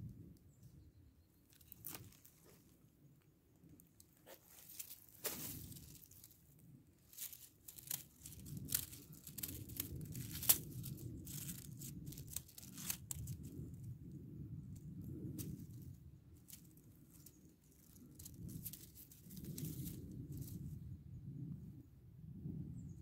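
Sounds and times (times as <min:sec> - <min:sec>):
dry leaves crackling and rustling: 0:01.5 - 0:02.7, 0:04.1 - 0:13.8, 0:15.0 - 0:20.7.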